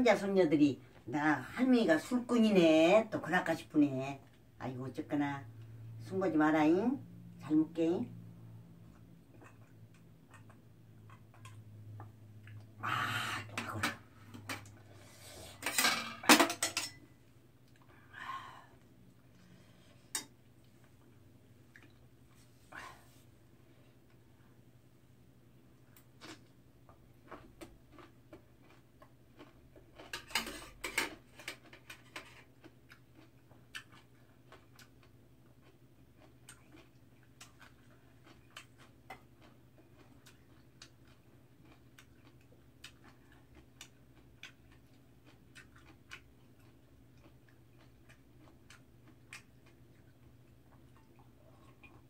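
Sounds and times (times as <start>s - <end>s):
chewing: 8.8s - 12.7s, 20.6s - 22.4s, 26.2s - 52.0s
clatter on metal tray: 15.6s - 17.0s, 30.1s - 32.4s.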